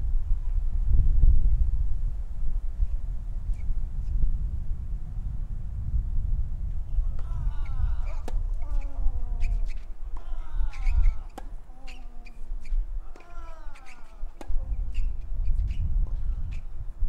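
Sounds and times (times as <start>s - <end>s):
low wind rumble: 0.0s - 17.0s
racket hitting tennis ball: 7.1s - 16.2s
player grunting: 7.2s - 9.4s, 10.2s - 12.2s, 13.0s - 14.7s.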